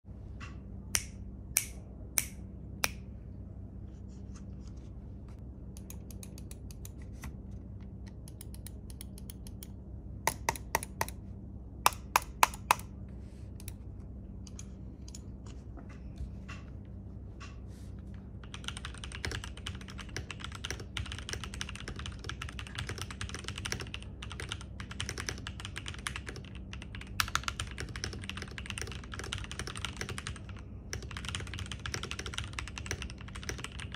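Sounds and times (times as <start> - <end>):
mechanical keyboard typing: 10.3 - 11.2, 11.9 - 12.9, 18.4 - 33.9.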